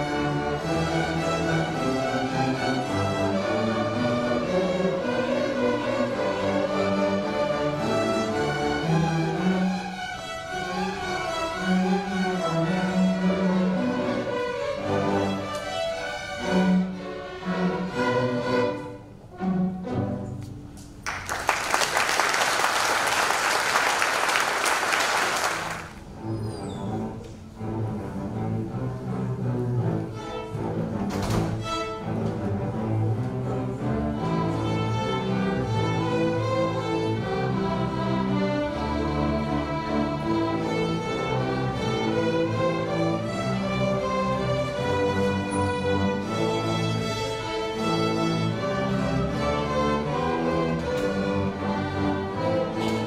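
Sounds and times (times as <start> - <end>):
string orchestra playing: 0.0 - 53.0
audience applause: 21.0 - 26.0.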